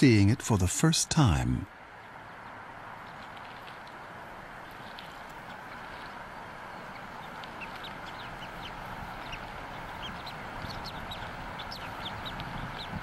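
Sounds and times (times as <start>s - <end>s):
eagle chick peeping: 4.6s - 13.0s.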